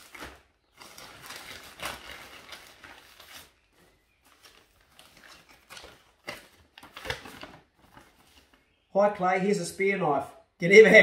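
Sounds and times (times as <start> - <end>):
plastic bag rustling: 0.0 - 8.6.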